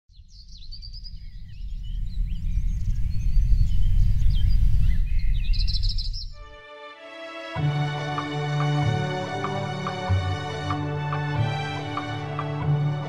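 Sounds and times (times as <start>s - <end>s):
birds chirping: 0.1s - 6.5s
low rumbling noise: 0.6s - 6.3s
music: 6.4s - 13.0s.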